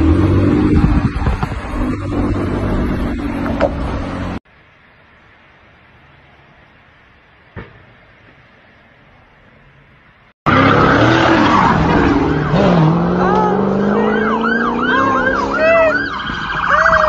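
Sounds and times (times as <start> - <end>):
car engine revving hard: 10.5 - 15.7
siren yelping: 10.5 - 17.0.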